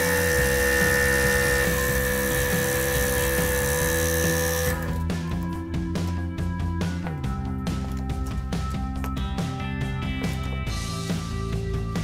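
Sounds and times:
scroll saw cutting wood: 0:00.0 - 0:05.0
background music: 0:00.0 - 0:12.0.

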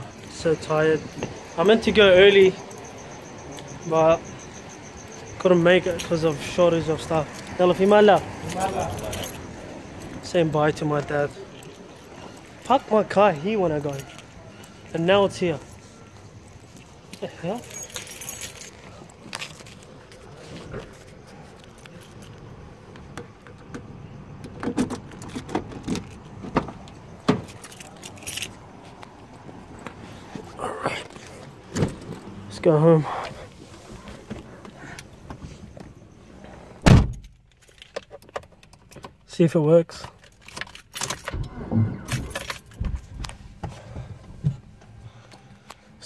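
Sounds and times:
keys jangling: 0:00.0 - 0:22.7, 0:24.6 - 0:29.2, 0:37.1 - 0:39.3, 0:39.9 - 0:41.4, 0:42.1 - 0:43.4
clicks and knocks at car door: 0:22.9 - 0:27.8.

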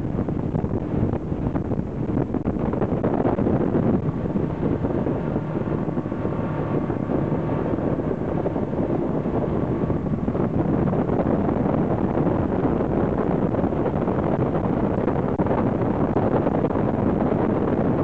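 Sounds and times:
motorboat engine: 0:00.0 - 0:18.0
rushing wake water: 0:00.0 - 0:18.0
wind buffeting microphone: 0:00.0 - 0:18.0.

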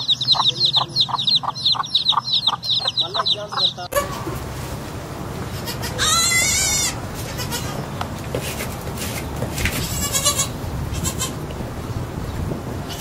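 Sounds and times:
lamb bleating: 0:05.5 - 0:07.8, 0:09.8 - 0:11.4.

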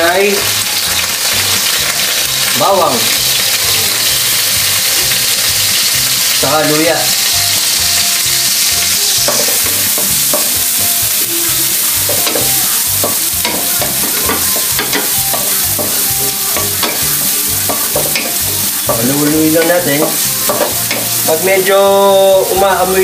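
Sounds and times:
garlic sizzling in hot oil: 0:00.0 - 0:23.0.

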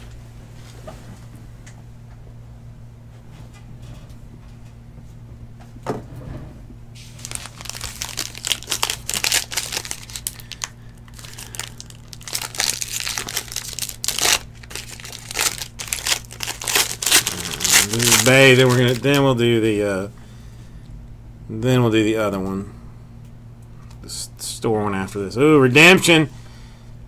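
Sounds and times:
foil wrapper crinkling and tearing: 0:07.0 - 0:19.3.

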